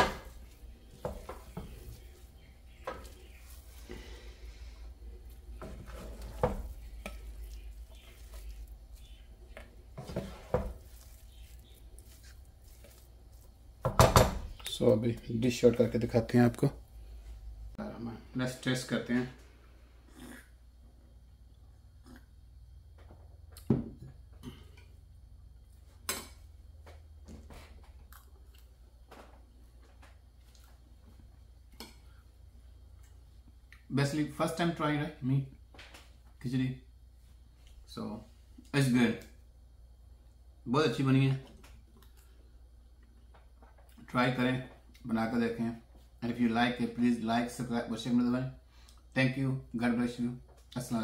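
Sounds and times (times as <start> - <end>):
wooden spoon scraping a pan: 0.0 - 14.0
soft chewing: 0.3 - 13.8, 21.5 - 22.5, 27.3 - 29.1, 29.7 - 33.9, 41.4 - 44.1.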